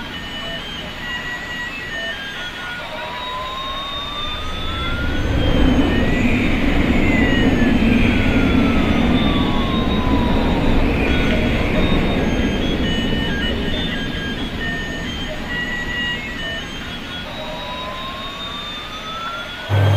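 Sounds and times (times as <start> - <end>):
simulated jet engine whine: 0.0 - 19.9
electronic rushing noise: 3.5 - 19.9
short electronic beeping tune: 19.7 - 19.9.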